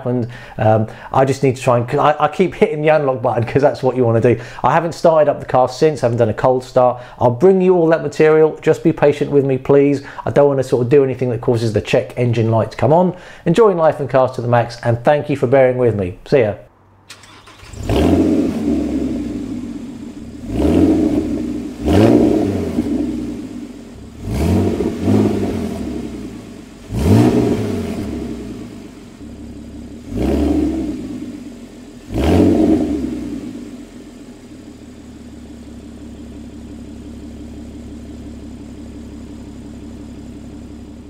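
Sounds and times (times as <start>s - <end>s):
engine revving: 17.0s - 36.6s
engine idling: 17.0s - 41.0s.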